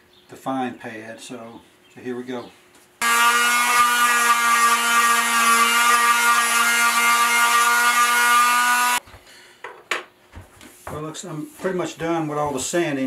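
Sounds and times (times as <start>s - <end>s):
palm sander motor whine: 3.0s - 9.0s.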